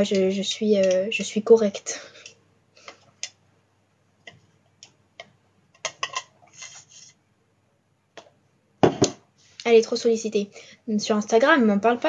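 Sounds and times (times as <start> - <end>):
faint irregular clicks and taps: 2.2 - 3.4, 4.2 - 6.3.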